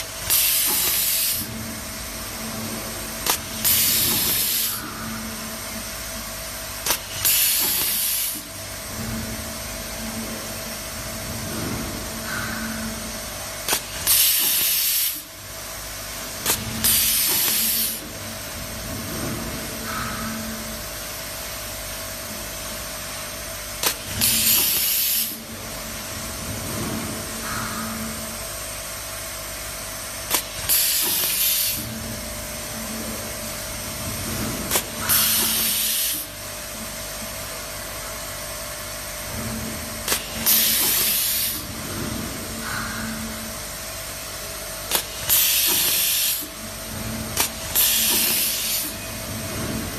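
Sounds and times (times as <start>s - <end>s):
faint feeder machine hum: 0.0s - 49.9s
loud air hiss: 3.3s - 4.9s, 6.8s - 8.5s, 14.0s - 15.3s, 16.8s - 18.0s, 24.1s - 25.4s, 35.0s - 36.4s, 40.1s - 41.7s, 44.9s - 46.6s, 47.5s - 49.1s.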